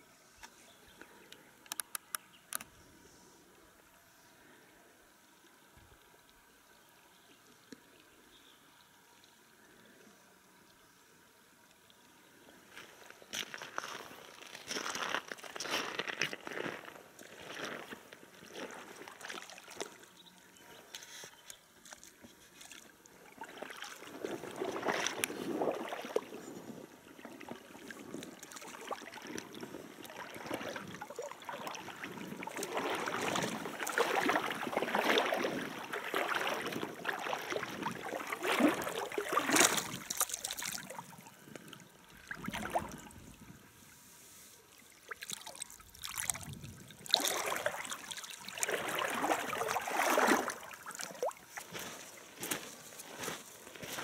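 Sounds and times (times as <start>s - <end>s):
fish thrashing and splashing water: 23.3s - 26.4s, 27.2s - 41.5s, 42.2s - 43.4s, 44.8s - 52.6s
hand splashing in shallow water: 28.1s - 41.4s, 42.2s - 43.4s, 44.7s - 51.8s.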